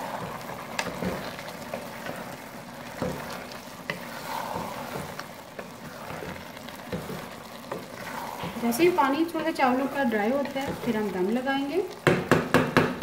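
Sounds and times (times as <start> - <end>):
spatula scraping rice in pot: 0.0 - 11.2
water simmering: 0.0 - 13.0
spatula knocking against pot: 12.0 - 13.0.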